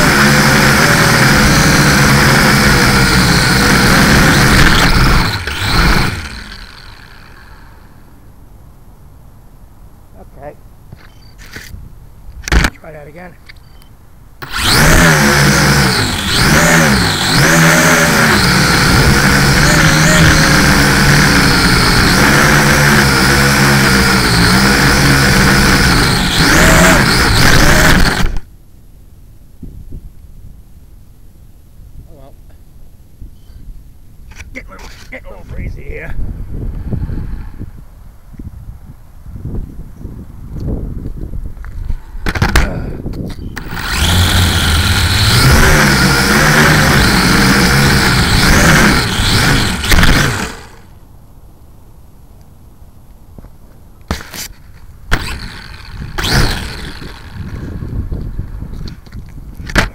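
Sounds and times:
drone propellers buzzing: 0.0 - 8.1, 14.4 - 28.4, 43.6 - 50.9, 55.1 - 58.8
quadcopter motors whining: 0.0 - 8.1, 14.4 - 28.5, 43.4 - 50.9, 55.1 - 59.0.

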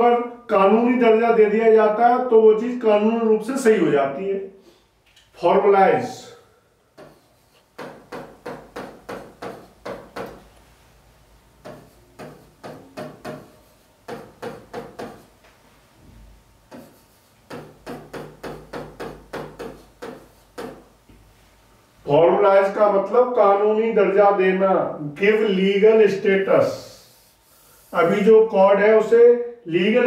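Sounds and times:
marker pen writing on whiteboard: 7.0 - 10.5, 11.6 - 15.4, 16.7 - 21.0.

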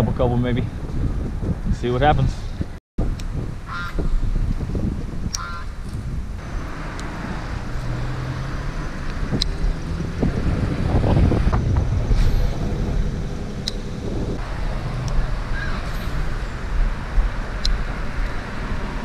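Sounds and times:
wind buffeting microphone: 0.0 - 19.0
road traffic passing: 2.5 - 19.0
vehicle engine hum: 4.2 - 19.0.

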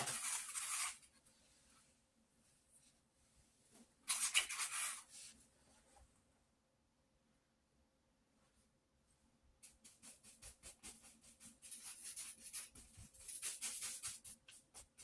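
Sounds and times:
paintbrush scrubbing on paper: 4.1 - 5.4, 9.6 - 15.0.

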